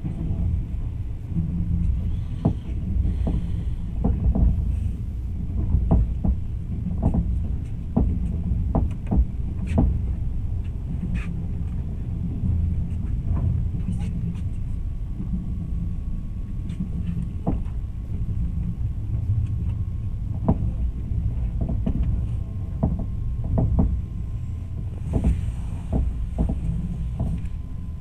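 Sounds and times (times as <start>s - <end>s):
train carriage rumble: 0.0s - 28.0s
train wheels knocking and clicking: 2.1s - 4.8s, 5.5s - 10.2s, 17.0s - 17.8s, 20.4s - 24.1s, 24.8s - 27.5s.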